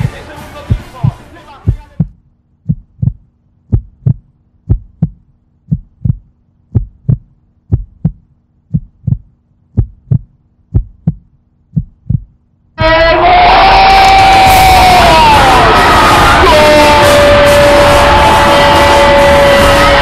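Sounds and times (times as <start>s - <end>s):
heartbeat thumps: 0.0s - 12.5s
faint steady hum: 0.7s - 12.8s.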